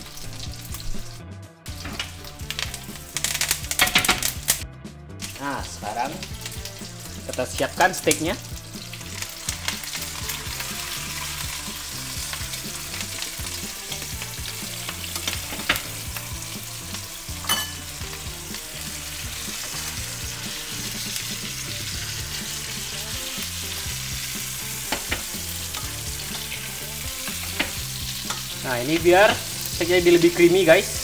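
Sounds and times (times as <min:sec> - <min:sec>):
steak sizzling in a frying pan: 0:00.0 - 0:04.6, 0:05.2 - 0:31.0
metal spoon clinking on pan: 0:17.4 - 0:17.9.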